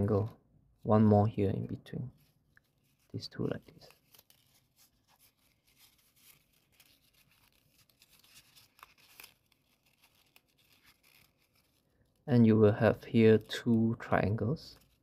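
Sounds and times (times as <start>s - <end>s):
paper rustling and crinkling: 2.1s - 12.3s, 14.2s - 15.0s
crisp paper ticks: 2.5s - 12.3s.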